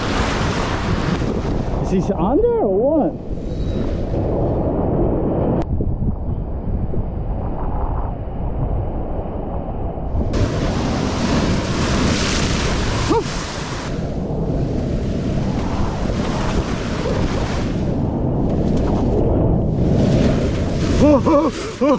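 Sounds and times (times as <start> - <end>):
surf washing over rocks: 0.0 - 1.9, 10.3 - 21.9
wind buffeting microphone: 0.0 - 21.9.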